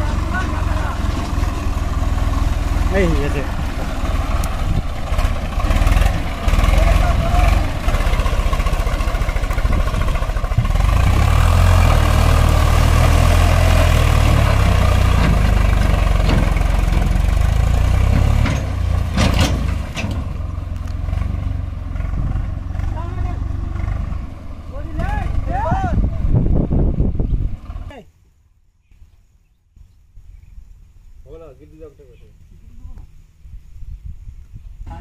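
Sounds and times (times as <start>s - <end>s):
tractor diesel engine under load: 0.0s - 28.0s.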